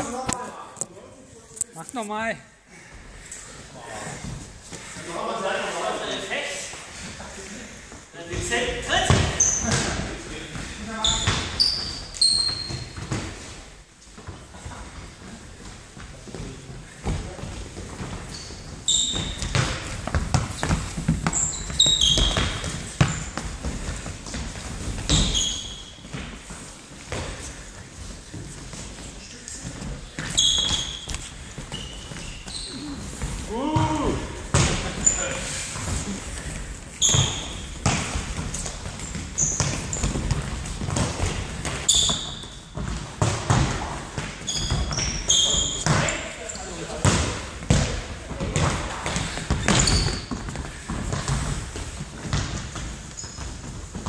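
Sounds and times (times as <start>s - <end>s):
sneakers squeaking on floor: 8.3s - 54.0s
ball kicked and bouncing: 19.1s - 24.4s, 33.7s - 35.0s, 37.0s - 45.2s, 45.8s - 46.1s, 52.2s - 54.0s.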